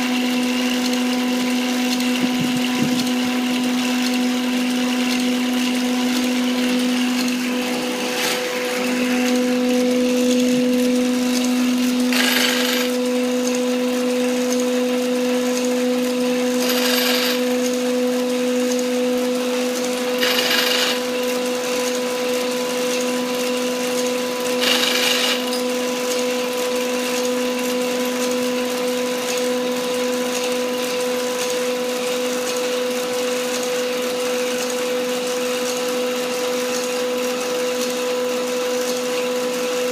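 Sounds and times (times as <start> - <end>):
small electric motor humming: 1.5 - 23.3, 24.0 - 26.1.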